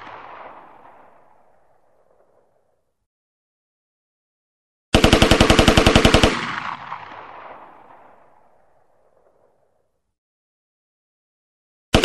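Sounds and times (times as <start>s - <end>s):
gunfire echo: 0.0s - 2.8s, 4.9s - 9.9s.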